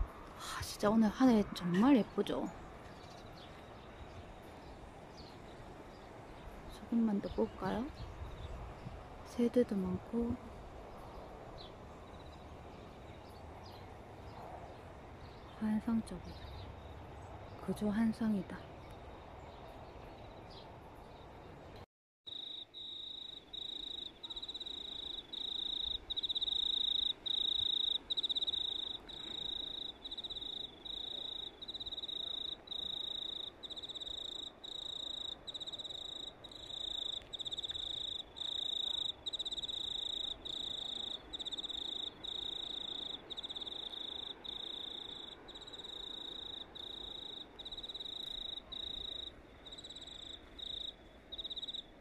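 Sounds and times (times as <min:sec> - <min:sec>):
faint background hiss: 0:00.0 - 0:52.0
cricket trilling: 0:22.3 - 0:51.9.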